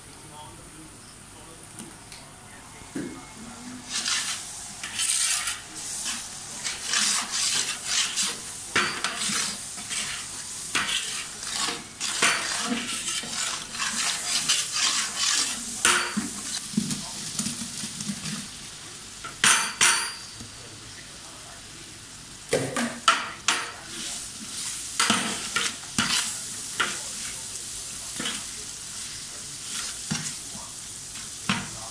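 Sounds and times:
ladle scraping a metal pot: 3.9s - 16.6s.

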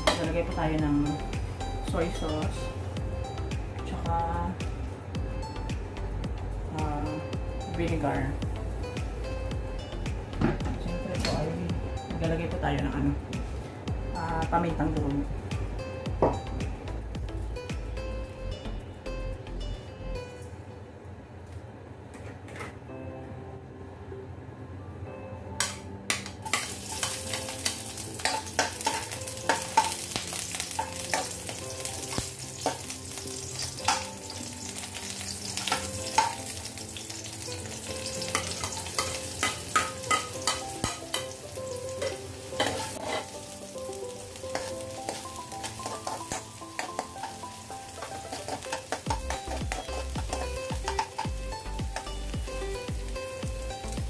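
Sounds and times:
garlic and onion sizzling in oil: 26.3s - 54.0s
metal spatula scraping a pan: 26.5s - 31.4s, 42.0s - 43.5s, 44.5s - 51.4s.

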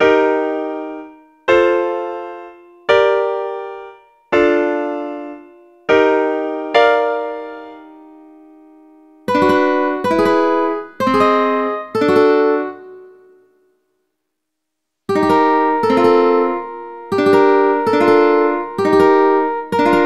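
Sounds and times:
piano chord: 0.0s - 13.6s, 15.1s - 20.0s
ukulele chords ringing: 9.3s - 13.4s, 15.1s - 20.0s.

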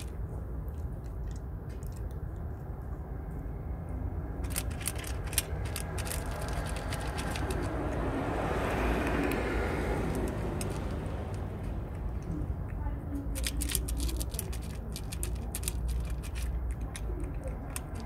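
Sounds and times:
cat licking and lapping: 0.0s - 3.5s
steady low rumble: 0.0s - 18.0s
passing vehicle: 2.0s - 18.0s.

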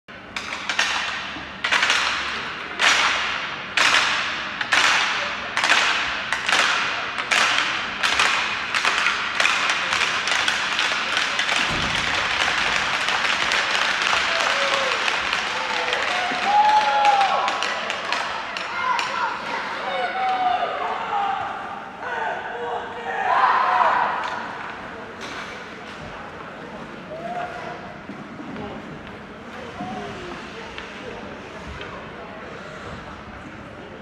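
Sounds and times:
crowd clapping in unison: 11.6s - 18.0s.

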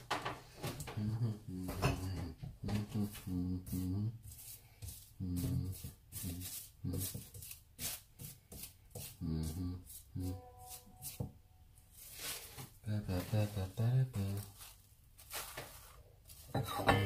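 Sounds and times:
low voice: 0.9s - 4.2s, 9.2s - 10.4s, 12.8s - 14.5s
cling film crinkling: 14.2s - 16.6s.

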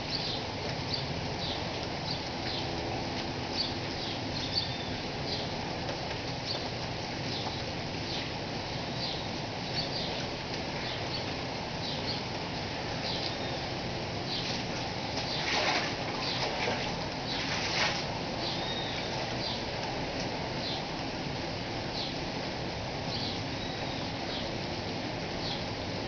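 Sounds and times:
small birds chirping: 0.0s - 2.7s, 3.5s - 5.6s, 6.4s - 14.6s, 15.2s - 15.5s, 18.4s - 19.7s, 20.6s - 20.9s, 22.0s - 22.2s, 23.1s - 24.6s, 25.4s - 25.7s
steady rain: 0.0s - 26.0s.

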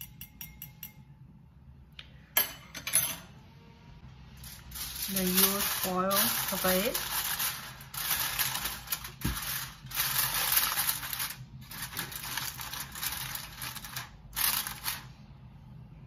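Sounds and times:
aluminium foil crinkling: 4.4s - 15.2s.

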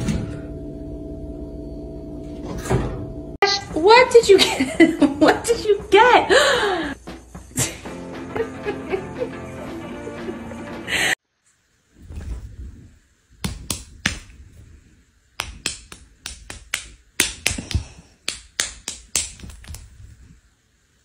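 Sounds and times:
paws slapping skin: 13.4s - 14.4s, 15.4s - 20.1s.

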